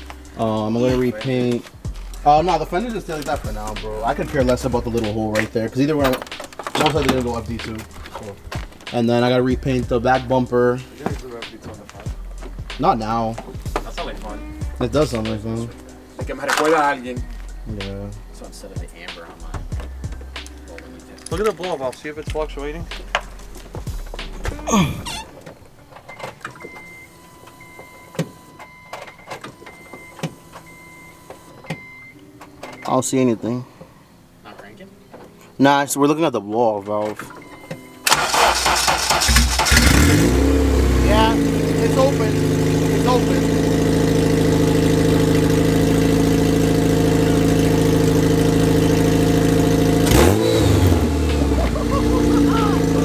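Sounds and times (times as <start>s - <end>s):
car engine idling: 0.0s - 10.8s, 38.0s - 53.0s
engine revving: 38.1s - 53.0s.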